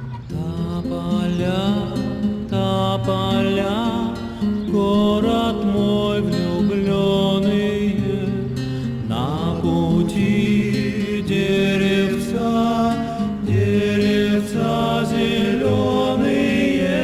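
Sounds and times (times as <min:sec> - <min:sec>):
voices singing in harmony: 0:00.0 - 0:17.0.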